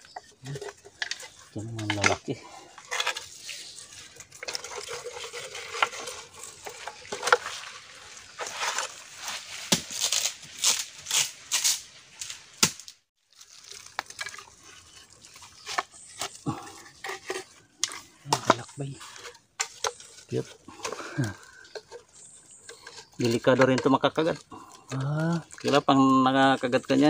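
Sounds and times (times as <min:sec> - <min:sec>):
scraping and rustling: 0:00.0 - 0:12.5, 0:13.4 - 0:27.0
hollow bamboo knocks and clacks: 0:21.7 - 0:27.0.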